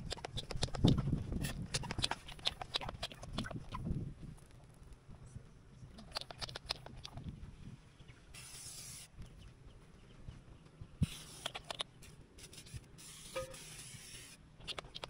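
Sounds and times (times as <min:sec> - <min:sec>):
sharp clicks and taps: 0:00.0 - 0:03.7, 0:14.6 - 0:15.0.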